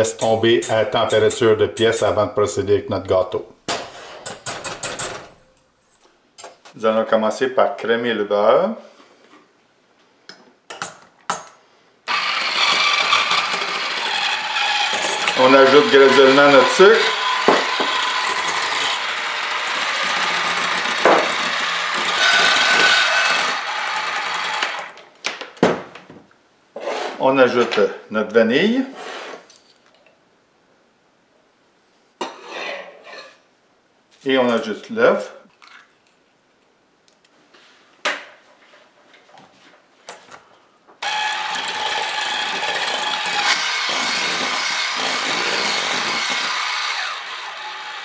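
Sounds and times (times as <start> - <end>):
electric hand mixer whirring: 12.1 - 25.0, 41.0 - 48.0.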